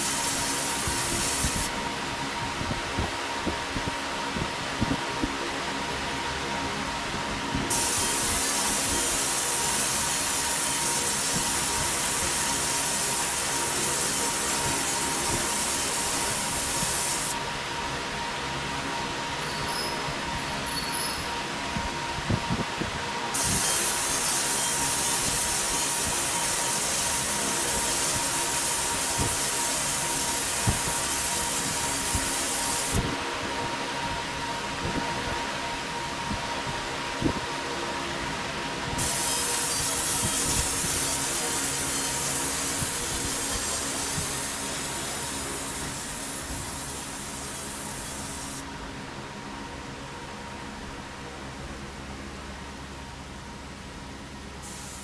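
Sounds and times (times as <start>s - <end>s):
laser hissing on metal: 0.0s - 1.7s, 7.7s - 17.4s, 23.4s - 33.0s, 39.0s - 48.6s, 54.6s - 55.0s
thin whine: 6.3s - 48.8s.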